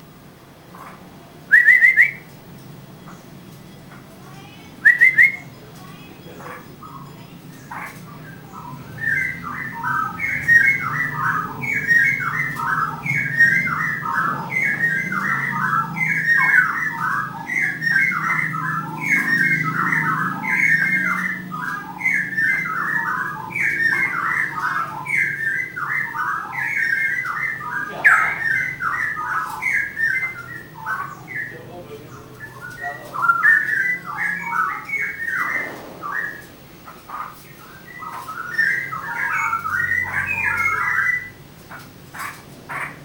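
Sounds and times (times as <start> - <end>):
songbird whistling: 1.5 - 2.3, 4.8 - 5.6, 8.6 - 31.5, 32.4 - 36.5, 37.6 - 41.4.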